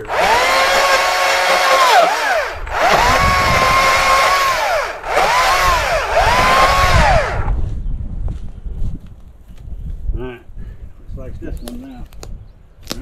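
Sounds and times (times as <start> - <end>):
chainsaw cutting wood: 0.0 - 7.6.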